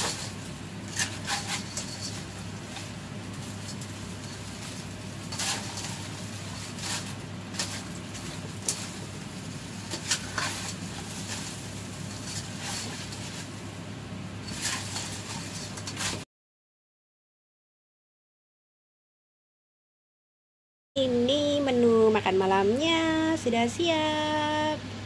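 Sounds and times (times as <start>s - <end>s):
utensil scraping a pan: 0.0s - 13.7s, 14.4s - 16.2s
steady low hum: 0.0s - 16.1s
light sizzle: 0.0s - 16.3s.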